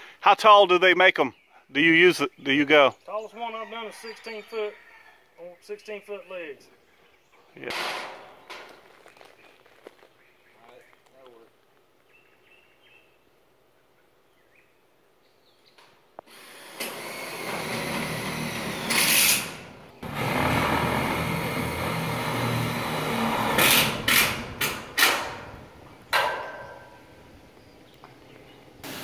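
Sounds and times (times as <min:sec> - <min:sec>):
cordless drill driving screws: 0:16.2 - 0:25.3.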